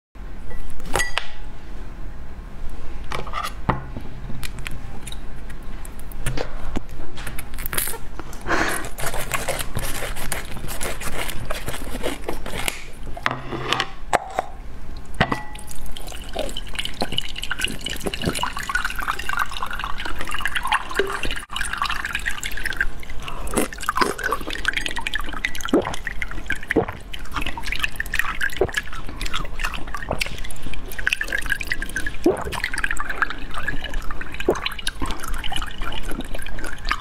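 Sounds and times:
scissors cutting plastic: 8.8 - 13.0
liquid dripping into a bowl: 15.0 - 37.0.

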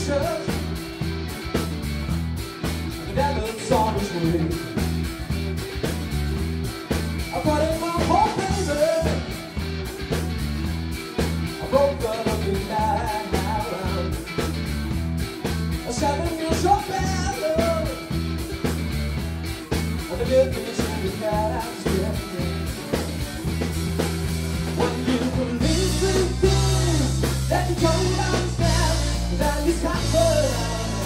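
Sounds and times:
person singing: 0.0 - 0.7, 3.0 - 4.8, 7.3 - 9.4, 11.6 - 14.2, 15.9 - 18.1, 20.1 - 22.7, 24.8 - 31.0
live rock band playing: 0.0 - 31.0.

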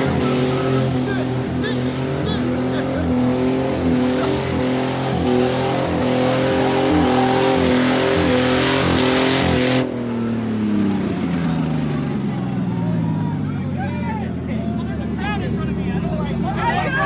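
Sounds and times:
car engine revving high: 0.0 - 12.7.

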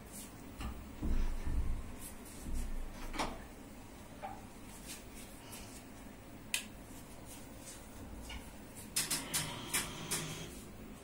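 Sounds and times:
soft rustling of parcel: 4.5 - 6.2.

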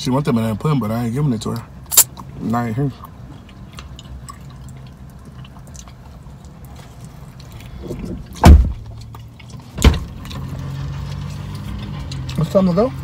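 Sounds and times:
wet chewing and smacking: 1.4 - 13.0
loud sharp thumps: 7.8 - 8.9.

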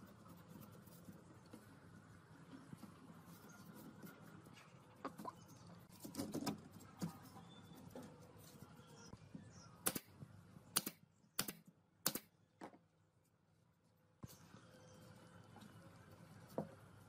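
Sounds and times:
nail gun firing into wood: 9.8 - 10.1, 10.8 - 12.3.

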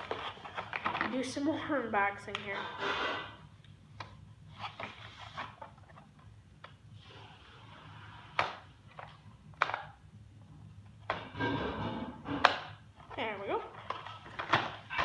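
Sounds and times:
hands rustling toy packaging: 0.0 - 1.6.

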